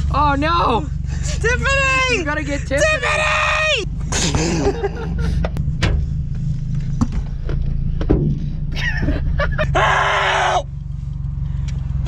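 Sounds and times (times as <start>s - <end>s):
pickup engine idling: 0.0s - 12.0s.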